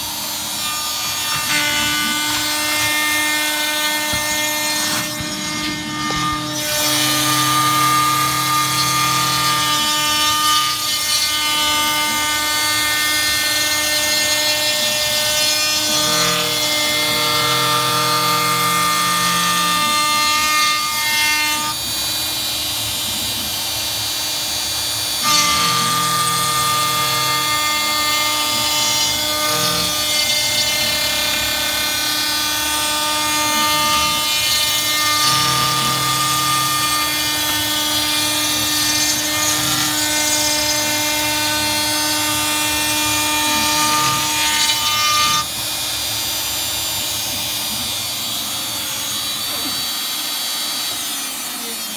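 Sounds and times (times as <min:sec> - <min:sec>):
router spindle cutting wood: 0:00.0 - 0:51.9.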